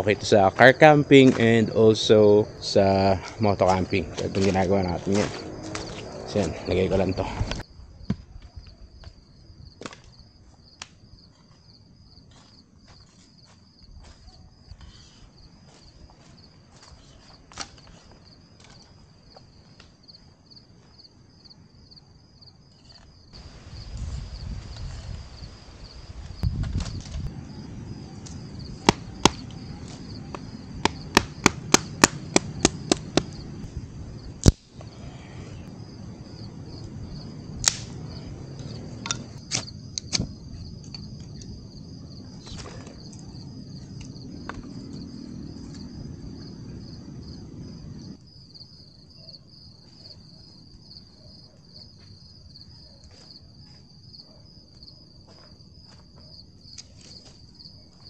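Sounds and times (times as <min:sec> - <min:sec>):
crickets chirping: 0:00.0 - 0:58.0
sharp wooden knocks: 0:30.8 - 0:33.4
sticks snapping: 0:34.4 - 0:34.7, 0:37.6 - 0:38.0, 0:39.1 - 0:40.3.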